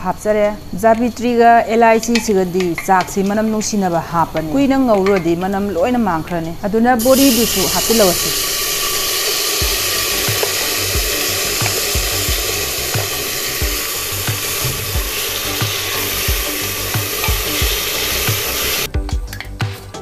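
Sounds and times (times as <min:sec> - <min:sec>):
food sizzling in a pan: 0:07.0 - 0:18.9.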